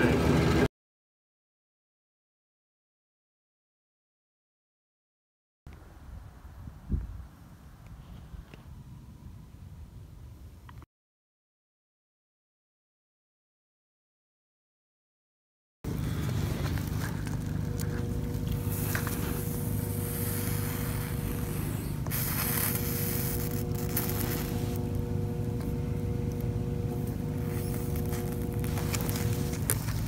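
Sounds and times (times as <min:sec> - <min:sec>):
wind rumbling on microphone: 0:05.7 - 0:10.8
soldering hiss: 0:16.0 - 0:30.0.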